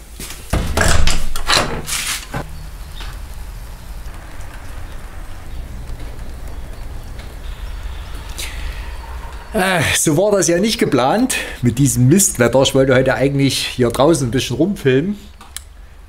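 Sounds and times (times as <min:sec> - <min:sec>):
door latch clunking and rattling: 0:00.5 - 0:01.9
low background rumble: 0:02.4 - 0:11.8.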